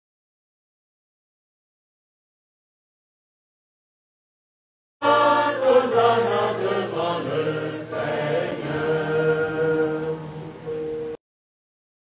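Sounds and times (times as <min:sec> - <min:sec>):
group chanting in unison: 0:05.0 - 0:10.6.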